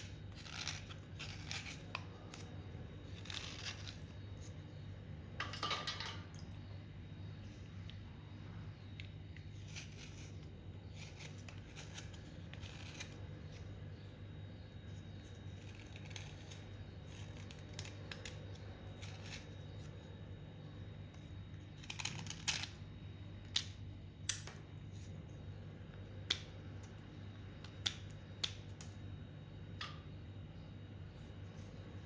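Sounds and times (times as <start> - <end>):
metal blade scraping clay: 0.0 - 4.8, 9.4 - 14.2, 14.8 - 20.0, 21.7 - 22.8
clay chips clicking: 21.6 - 22.8, 25.9 - 29.1.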